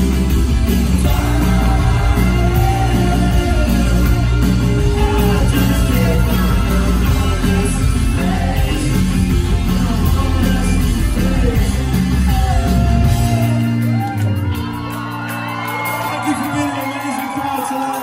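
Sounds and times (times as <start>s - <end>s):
live rock band playing: 0.0s - 18.0s
person singing: 1.0s - 14.2s.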